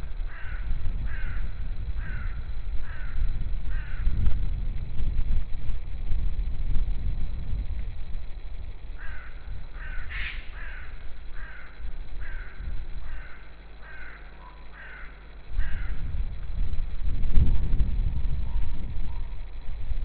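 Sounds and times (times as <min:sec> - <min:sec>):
low steady rumble: 0:00.0 - 0:20.0
bird harsh calls: 0:09.0 - 0:16.0.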